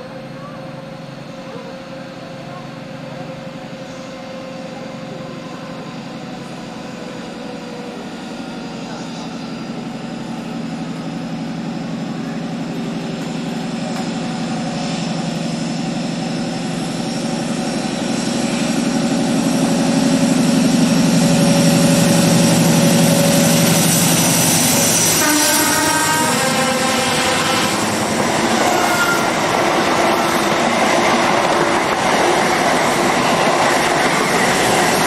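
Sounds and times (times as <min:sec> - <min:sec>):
diesel train passing: 0:00.0 - 0:35.0.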